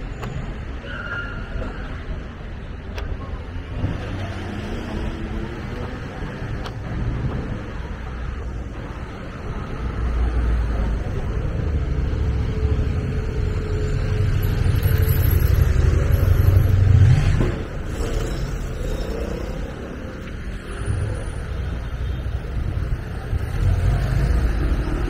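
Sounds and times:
motorbikes passing by: 0:11.4 - 0:25.0.

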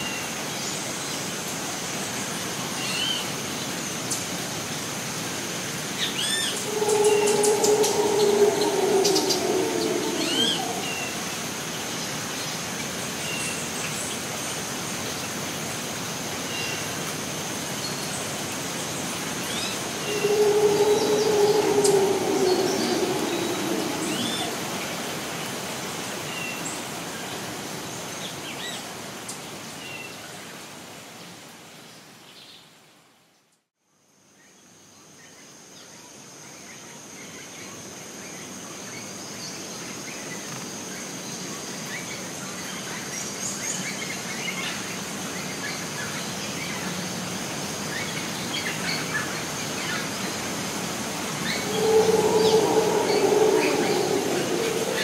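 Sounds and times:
steady background hiss: 0:00.6 - 0:30.0, 0:47.3 - 0:55.0
loud low drone: 0:06.5 - 0:11.5, 0:19.8 - 0:25.4, 0:51.4 - 0:55.0.

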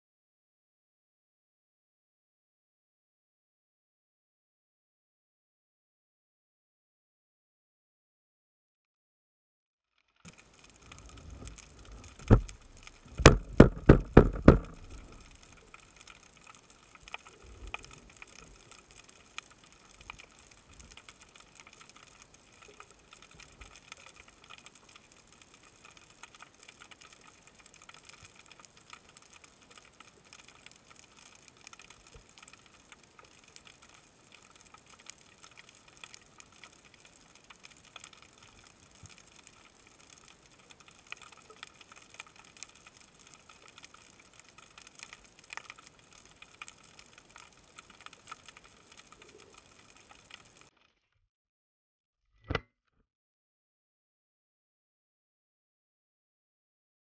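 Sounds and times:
underwater crackling and clicking: 0:10.3 - 0:51.0
sharp underwater knocks: 0:12.2 - 0:15.2.

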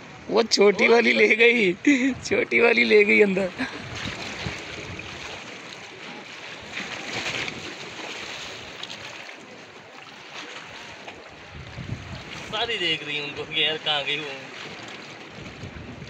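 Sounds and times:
wind on microphone: 0:02.0 - 0:02.6, 0:03.5 - 0:07.8, 0:11.3 - 0:12.8, 0:14.7 - 0:16.0.

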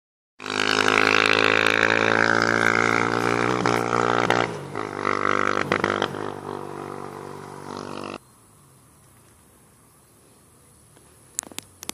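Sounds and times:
atv engine droning: 0:00.4 - 0:08.2.

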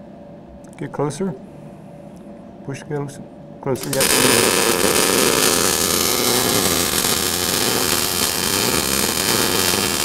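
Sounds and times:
welding arc crackling: 0:03.8 - 0:10.0.

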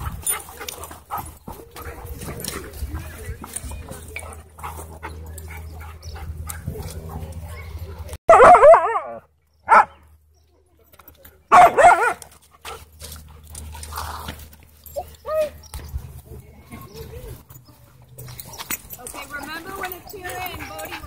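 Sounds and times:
dog barking: 0:08.3 - 0:10.0, 0:11.5 - 0:12.2.

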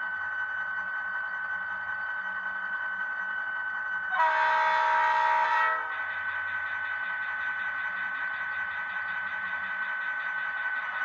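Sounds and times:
model locomotive horn blast: 0:04.1 - 0:06.0.

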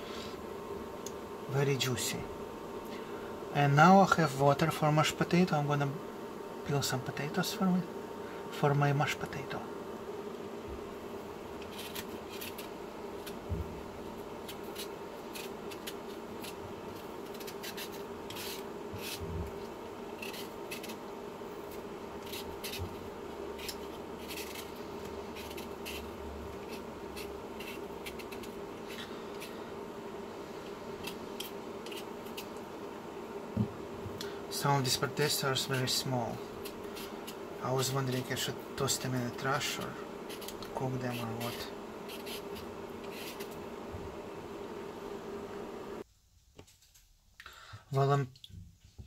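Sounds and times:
steady low hum: 0:00.0 - 0:46.3
peeler scraping potato skin: 0:11.6 - 0:13.4, 0:14.3 - 0:29.6, 0:31.0 - 0:32.6, 0:35.6 - 0:43.6.

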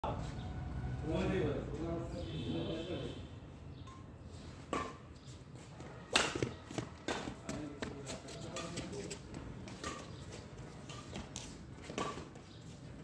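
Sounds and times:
rackets hitting shuttlecock: 0:04.7 - 0:05.1, 0:05.8 - 0:13.0.

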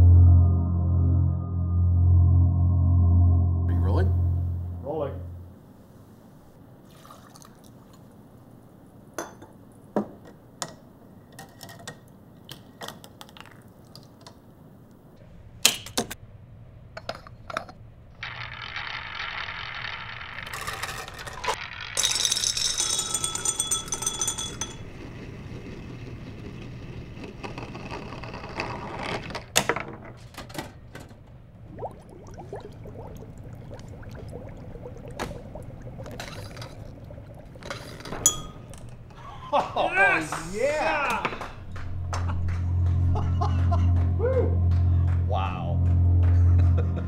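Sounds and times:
low hum: 0:00.0 - 0:06.6, 0:31.5 - 0:39.6, 0:41.4 - 0:47.0
marbles rushing rattle: 0:18.2 - 0:28.3.

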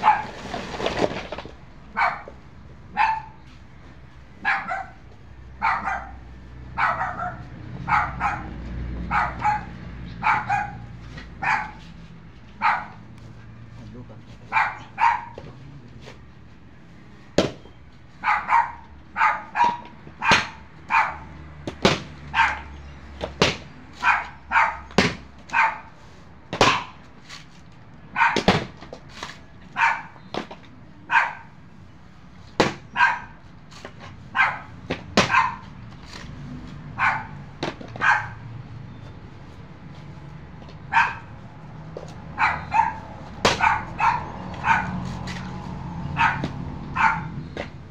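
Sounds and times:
dog barking: 0:00.0 - 0:00.3, 0:01.9 - 0:03.4, 0:04.4 - 0:05.0, 0:05.6 - 0:11.9, 0:12.6 - 0:13.0, 0:14.5 - 0:15.4, 0:18.2 - 0:21.3, 0:22.3 - 0:22.8, 0:24.0 - 0:24.9, 0:25.5 - 0:25.9, 0:28.1 - 0:28.5, 0:29.7 - 0:30.2, 0:31.1 - 0:31.6, 0:32.9 - 0:33.4, 0:34.3 - 0:35.7, 0:37.0 - 0:37.4, 0:38.0 - 0:38.5, 0:40.9 - 0:41.3, 0:42.4 - 0:45.1, 0:46.1 - 0:47.4
machete chopping coconuts: 0:17.4 - 0:17.7, 0:19.6 - 0:20.6, 0:21.6 - 0:22.3, 0:23.2 - 0:24.2, 0:24.9 - 0:25.6, 0:26.5 - 0:27.5, 0:28.2 - 0:29.5, 0:30.2 - 0:30.8, 0:32.4 - 0:33.0, 0:34.8 - 0:36.6, 0:37.6 - 0:38.0, 0:43.2 - 0:45.6, 0:46.4 - 0:46.7.

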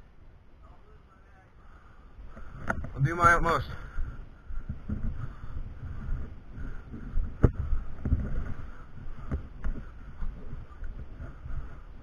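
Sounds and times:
low rumbling wind: 0:00.0 - 0:12.0
microphone handling noise: 0:02.3 - 0:03.4, 0:04.0 - 0:11.9.

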